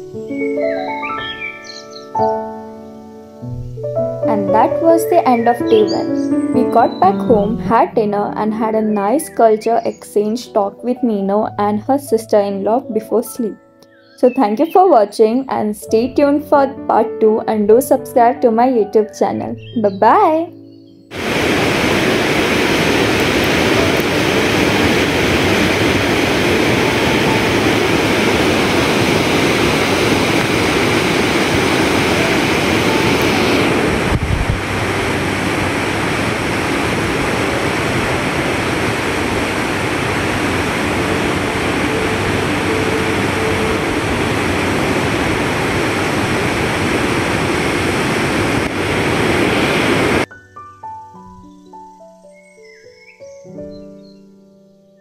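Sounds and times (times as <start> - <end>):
river rushing through rapids: 21.1 - 50.3.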